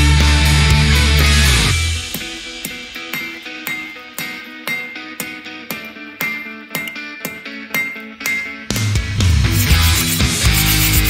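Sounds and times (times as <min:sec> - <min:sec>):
picked guitar notes: 0:00.0 - 0:09.9
rock band playing: 0:00.0 - 0:11.0.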